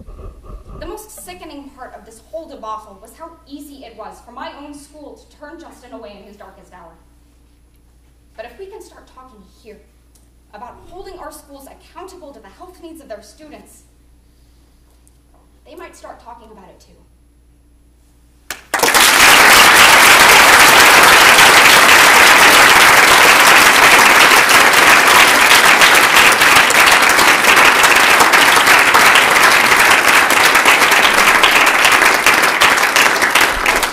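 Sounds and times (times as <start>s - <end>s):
audience applauding: 18.5s - 33.9s.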